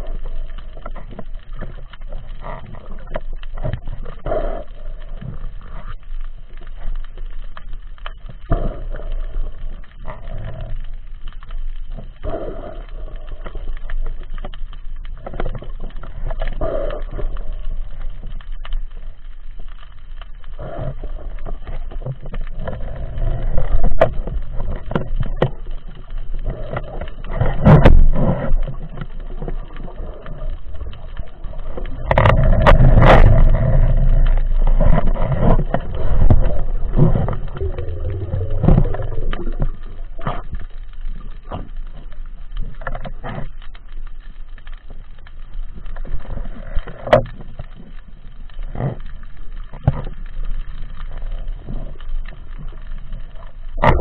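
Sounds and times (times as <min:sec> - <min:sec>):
underwater rush of moving water: 0:00.0 - 0:54.0.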